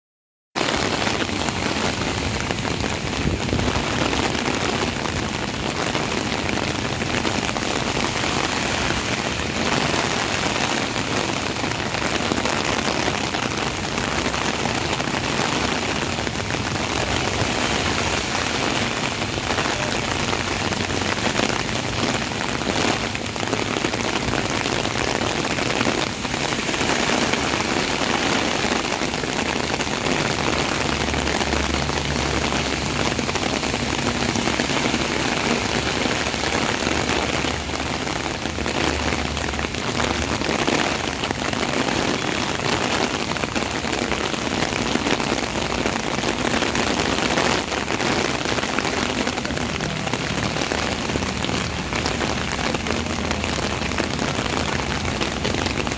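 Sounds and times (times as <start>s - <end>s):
heavy rain on water and pavement: 0.5s - 55.9s
passing traffic rumble: 0.8s - 55.9s.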